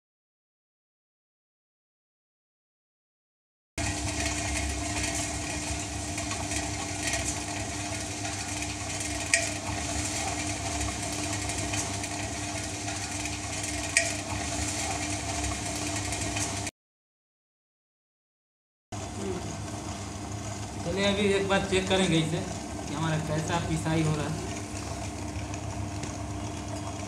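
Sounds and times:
wet grinder hum and rattle: 3.8 - 16.7, 19.0 - 27.0.

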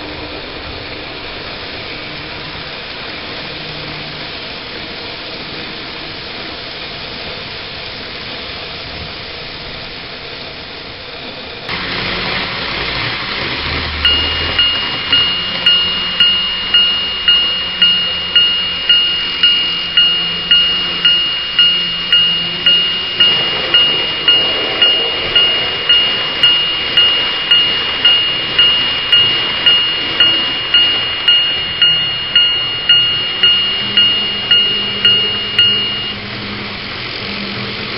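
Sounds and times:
model train rolling on track: 0.0 - 37.9
crossing warning bell ringing: 11.7 - 37.2
low rumbling hum: 13.5 - 37.0.

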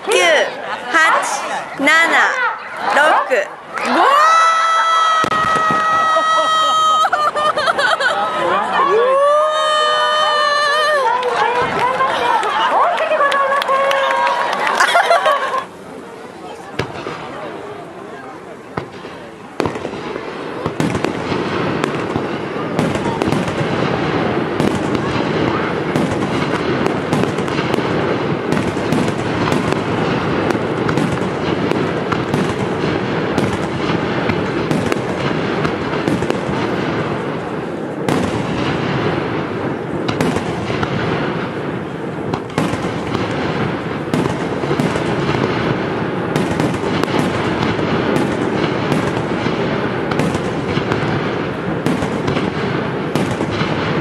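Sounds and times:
fireworks crackling: 0.0 - 54.0
firework shells bursting: 18.7 - 54.0.

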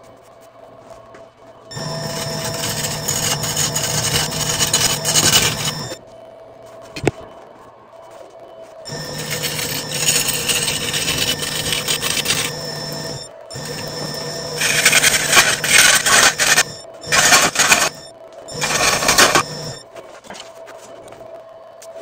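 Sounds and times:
wood lathe tool cutting: 1.8 - 6.0, 8.9 - 18.0
thin high ringing tones: 8.9 - 19.8.

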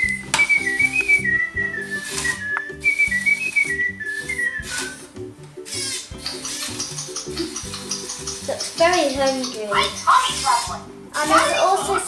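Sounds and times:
whistled tune: 0.0 - 8.5
background music with steady beat: 0.0 - 12.0.

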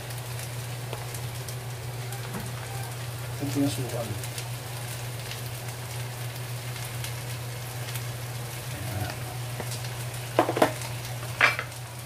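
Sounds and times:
shrimp sizzling in oil: 0.0 - 12.0.

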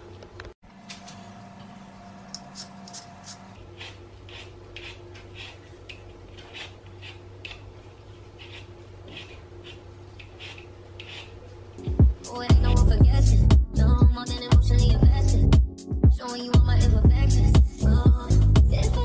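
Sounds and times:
low steady hum: 0.0 - 15.5
peeler scraping potato skin: 2.4 - 11.4.

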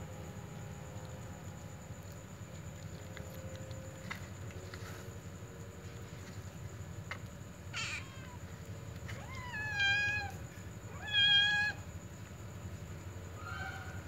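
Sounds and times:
kittens meowing: 7.7 - 8.5, 9.1 - 11.9.

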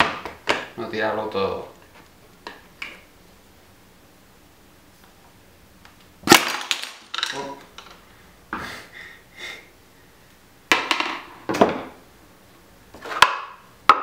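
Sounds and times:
metal parts knocking on workbench: 10.7 - 11.9.

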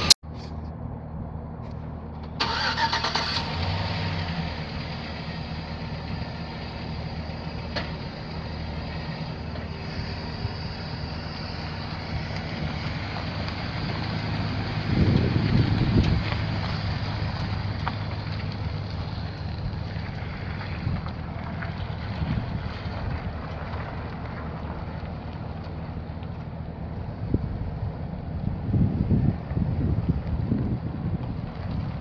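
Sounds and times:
truck engine idling: 0.0 - 32.0.

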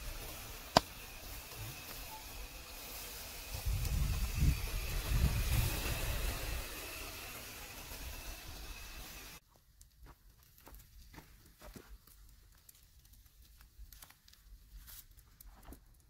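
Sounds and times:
steady hiss: 0.0 - 9.4
wind buffeting microphone: 3.4 - 6.8.

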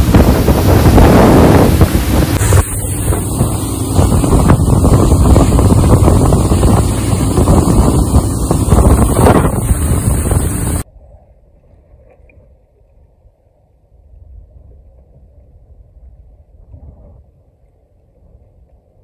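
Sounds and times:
boat wake rushing: 0.0 - 10.8
outboard motors droning: 0.0 - 10.8
wind buffeting microphone: 0.0 - 11.9, 14.0 - 18.9.

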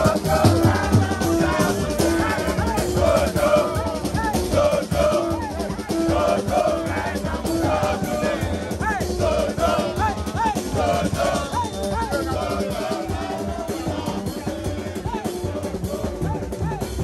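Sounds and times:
drums: 0.0 - 17.0
group singing: 0.0 - 17.0
horns: 0.0 - 17.0.

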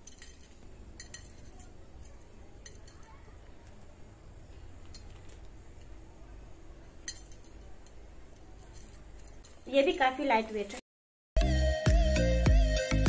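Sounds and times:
earrings clinking: 0.0 - 10.0.

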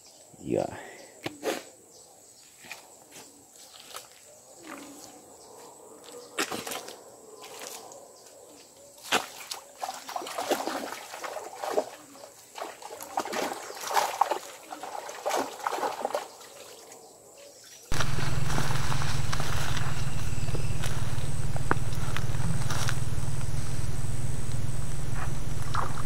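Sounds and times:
water splashing and sloshing: 9.0 - 17.0
loud rumbling noise: 17.9 - 26.0.

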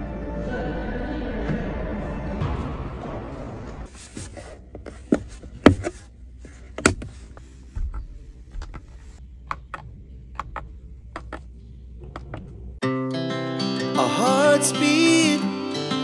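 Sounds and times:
low steady hum: 4.0 - 12.8.

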